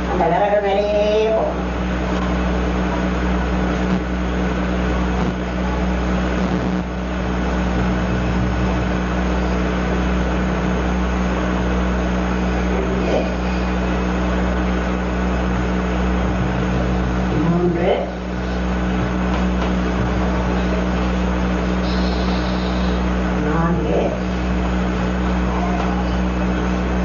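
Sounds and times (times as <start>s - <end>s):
steady hum: 0.0s - 27.0s
hiss: 21.8s - 23.0s.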